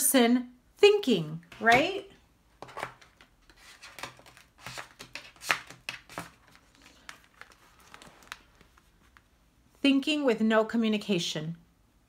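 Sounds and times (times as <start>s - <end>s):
cards sliding on tabletop: 2.6s - 8.2s.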